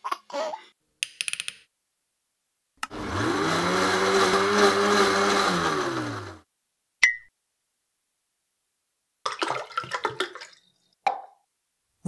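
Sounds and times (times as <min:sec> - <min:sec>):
blender motor whirring: 0:02.9 - 0:06.4.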